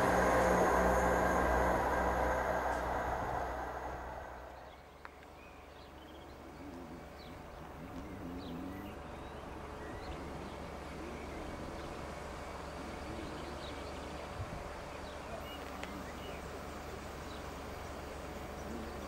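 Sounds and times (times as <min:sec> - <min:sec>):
faint low rumble: 0:00.0 - 0:05.5
small birds chirping: 0:04.6 - 0:19.0.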